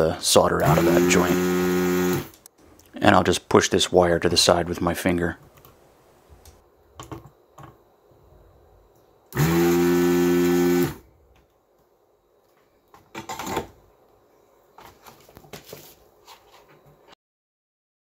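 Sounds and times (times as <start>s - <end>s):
vacuum pump humming: 0.6s - 2.4s, 9.3s - 11.0s.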